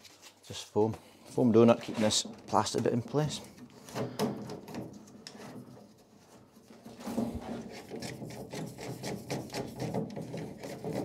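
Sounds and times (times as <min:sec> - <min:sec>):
plastic nut threads scraping: 0:06.7 - 0:11.0.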